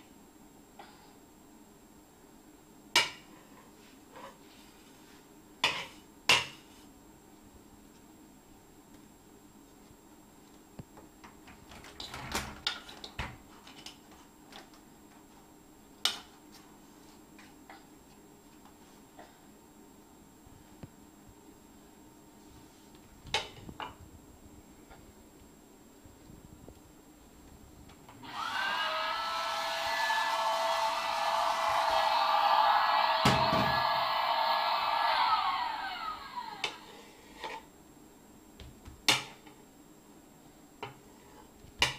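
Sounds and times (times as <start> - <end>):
toy vacuum whirring down: 28.2 - 32.1.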